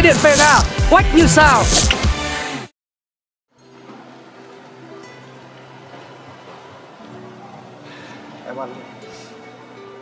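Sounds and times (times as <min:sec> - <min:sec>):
soft background music: 0:03.6 - 0:10.0.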